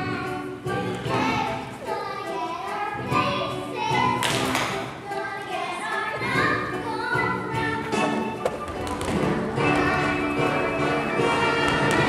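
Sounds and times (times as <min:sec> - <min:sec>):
girls singing: 0:00.0 - 0:08.4, 0:09.2 - 0:12.0
stage musical accompaniment: 0:00.0 - 0:12.0
taps and thumps on stage: 0:04.2 - 0:04.9, 0:08.4 - 0:10.0, 0:11.4 - 0:12.0.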